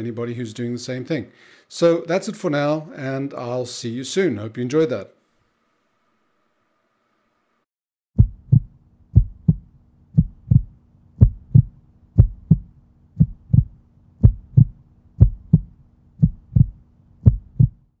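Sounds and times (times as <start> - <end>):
faint low hum: 8.2 - 18.0
heartbeat thumps: 8.2 - 18.0.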